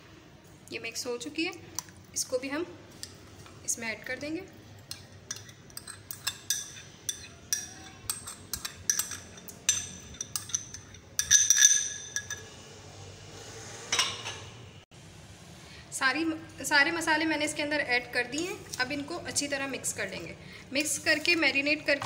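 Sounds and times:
metal spoon scraping glass bowl: 4.8 - 12.6.

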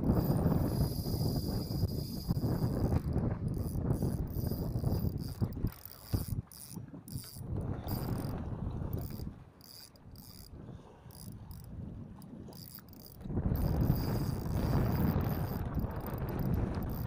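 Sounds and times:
fishing reel drag buzzing: 0.0 - 17.0
wind and water rumble: 0.0 - 17.0.

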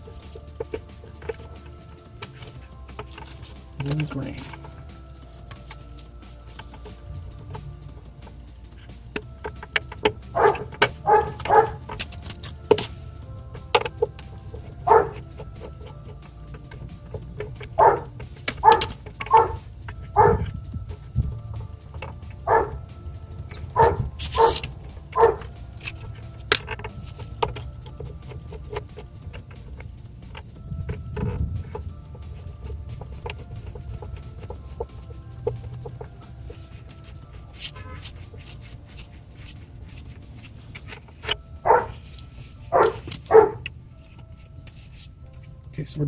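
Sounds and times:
tools clicking on terminals: 0.0 - 45.8
dog barking: 10.4 - 11.8, 14.8 - 15.2, 17.8 - 20.4, 22.5 - 22.8, 23.7 - 24.6, 25.2 - 25.5, 41.6 - 42.0, 42.7 - 43.6.

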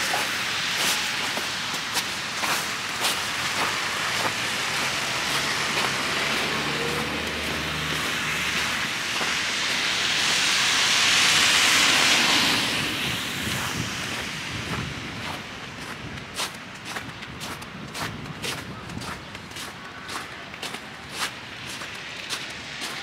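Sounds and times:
vehicle passing by: 3.2 - 15.0.

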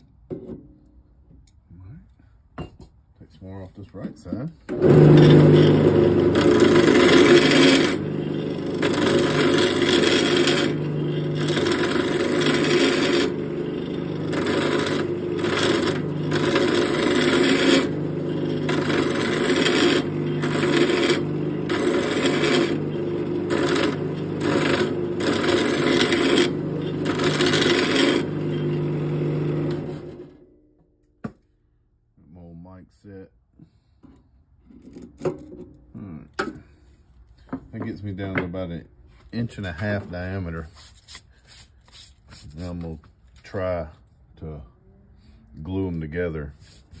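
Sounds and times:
turning tool scraping wood: 4.7 - 30.3, 39.1 - 43.6, 45.7 - 47.0
wood lathe motor hum: 4.7 - 30.4.

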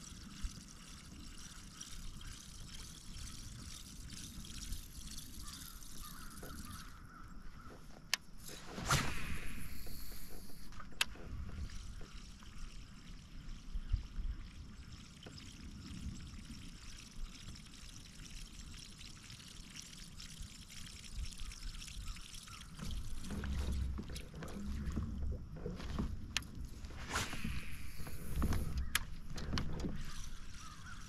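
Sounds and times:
water splashing against kayak: 20.5 - 31.0.

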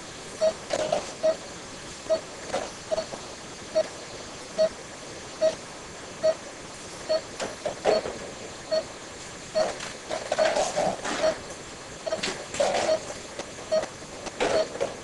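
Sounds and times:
steady room hiss: 0.0 - 15.0
patient monitor pulse beeps: 0.4 - 1.4, 2.1 - 2.3, 2.9 - 3.9, 4.6 - 4.8, 5.4 - 5.6, 6.2 - 6.4, 7.1 - 7.3, 7.9 - 8.9, 9.6 - 10.6, 11.2 - 14.8.

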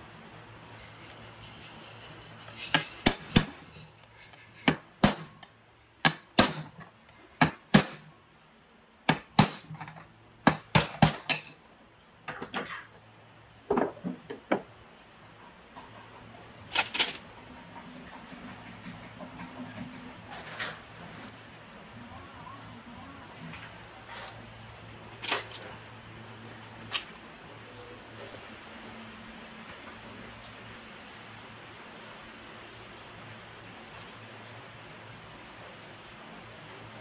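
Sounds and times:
metal tools clinking: 11.3 - 11.6.

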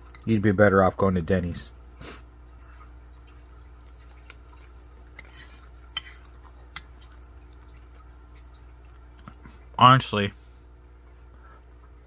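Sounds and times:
wet chewing sounds: 2.2 - 9.8.

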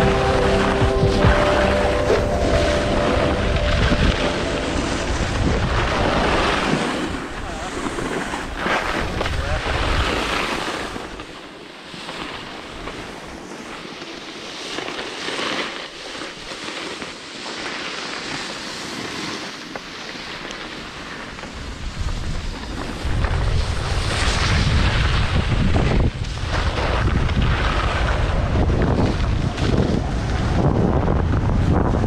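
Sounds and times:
wind buffeting microphone: 0.0 - 11.2, 21.5 - 32.0
skis scraping over snow: 0.0 - 32.0.

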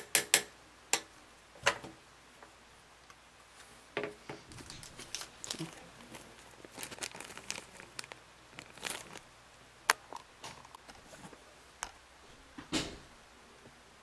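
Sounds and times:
plastic bag rustling: 4.4 - 9.3.

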